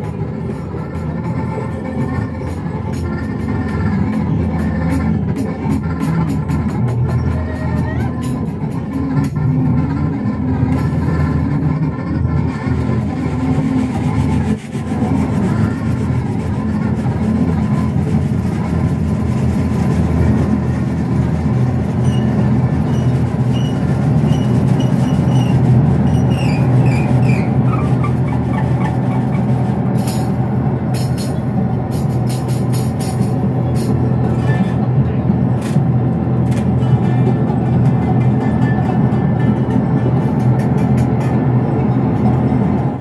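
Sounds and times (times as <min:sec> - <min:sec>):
rumbling synthesizer drone: 0:00.0 - 0:43.0.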